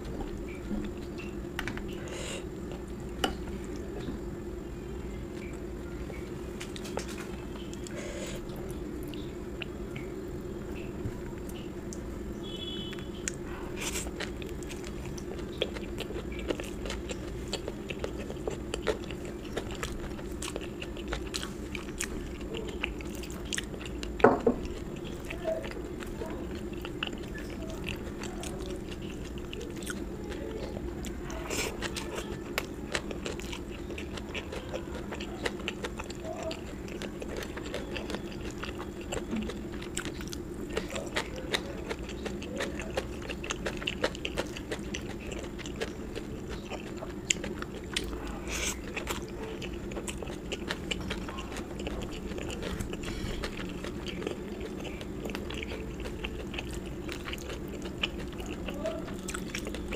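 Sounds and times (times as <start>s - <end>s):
chewing and biting food: 10.8s - 59.9s.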